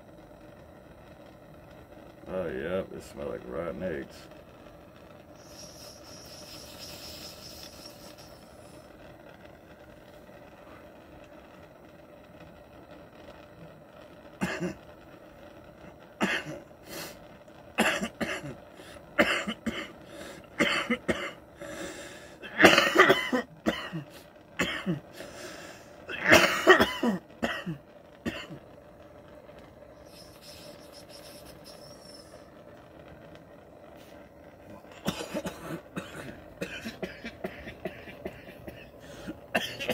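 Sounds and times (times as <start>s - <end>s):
man coughing hard: 14.4s - 14.8s, 16.2s - 16.6s, 17.8s - 18.6s, 19.2s - 19.9s, 20.6s - 21.4s, 22.4s - 25.0s, 26.1s - 28.6s, 35.0s - 38.9s, 39.5s - 39.9s.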